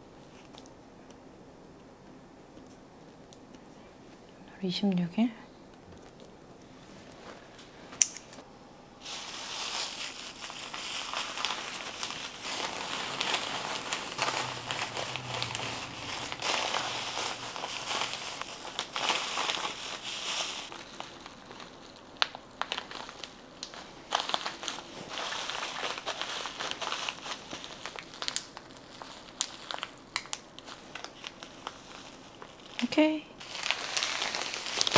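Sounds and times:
plastic bag crinkling: 9.0s - 34.9s.

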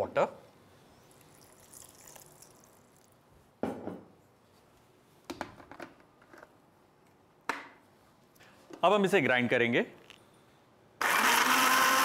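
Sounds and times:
water trickling into a jar: 1.1s - 3.2s.

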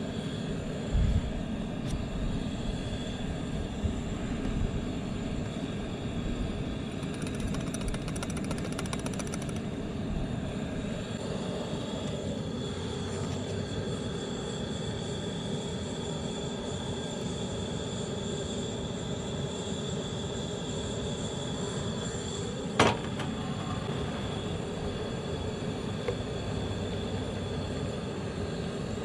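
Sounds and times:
camp stove burner rushing: 6.8s - 14.1s
rapid light ticking: 6.9s - 9.7s.

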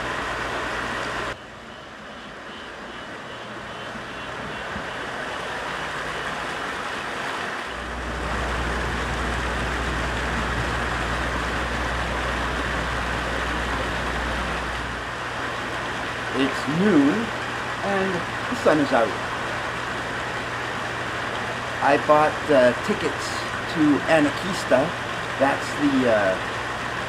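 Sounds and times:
mountain creek rushing: 4.2s - 27.0s
low rumble: 7.7s - 15.1s.

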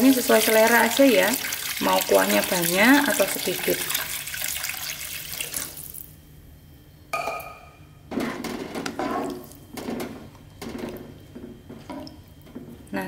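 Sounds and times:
water pouring into a wok: 0.0s - 6.0s.

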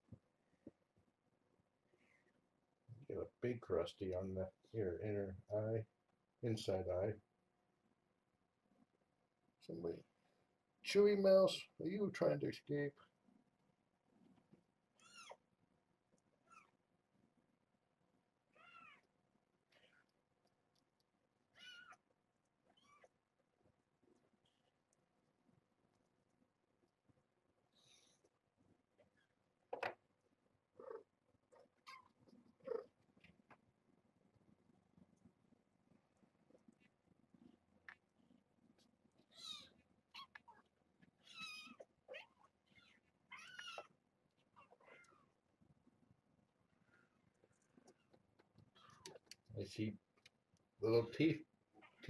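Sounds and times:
cat meowing: 15.0s - 15.4s, 18.6s - 19.1s, 21.5s - 22.0s, 39.3s - 40.6s, 41.2s - 43.9s
cat squeaky calls: 15.0s - 15.4s, 18.6s - 19.0s, 21.5s - 22.0s, 39.3s - 40.6s, 41.2s - 43.9s.

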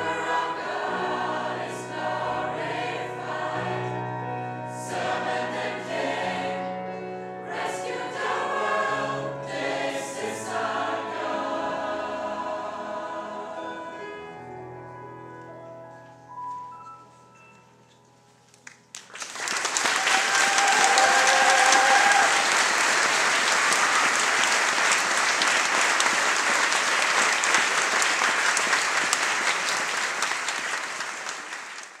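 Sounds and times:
choir accompaniment last notes: 0.0s - 14.4s
audience clapping: 18.6s - 32.0s
crowd cheering: 19.3s - 32.0s.

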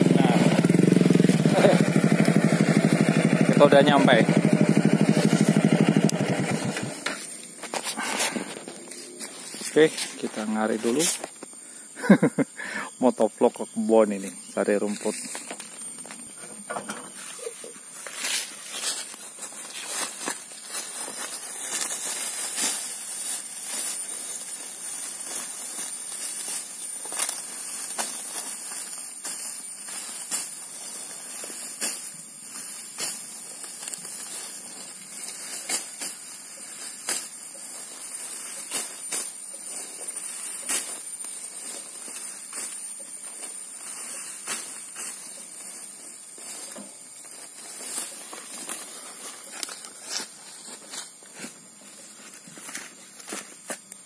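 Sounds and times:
sickle cutting grass: 0.0s - 12.4s, 13.9s - 54.0s.

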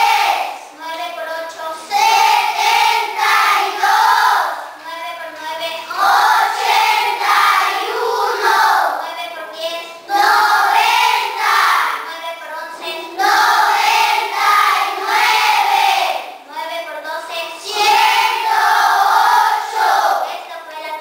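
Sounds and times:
children chanting together: 0.0s - 0.7s, 1.8s - 4.8s, 5.8s - 9.0s, 9.8s - 12.1s, 12.8s - 16.4s, 17.5s - 20.4s.

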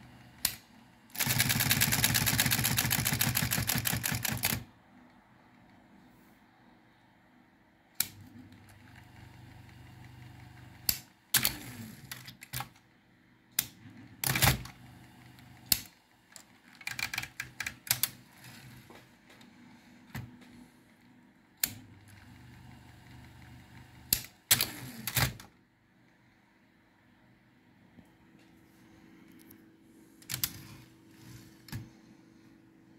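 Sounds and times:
typewriter motor humming: 0.2s - 4.6s, 8.0s - 12.6s, 21.6s - 25.4s
typewriter clacks: 1.2s - 4.6s.

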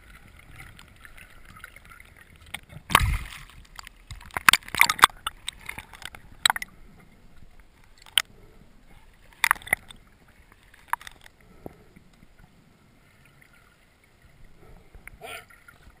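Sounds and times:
sharp clicks and knocks: 2.5s - 6.7s
low underwater hiss: 5.1s - 16.0s.

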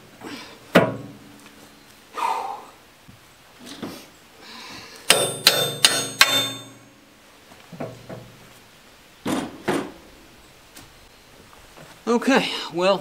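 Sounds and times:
dull knocks on metal: 5.1s - 6.8s
metal clanks: 5.1s - 6.9s.

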